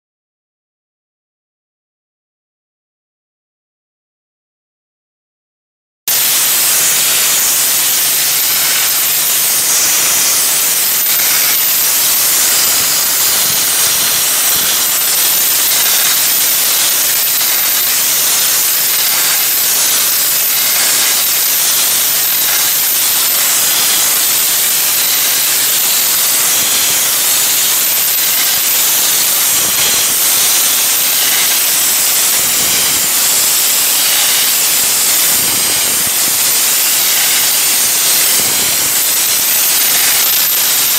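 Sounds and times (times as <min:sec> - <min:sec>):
dry ice blaster hissing: 0:06.1 - 0:40.9.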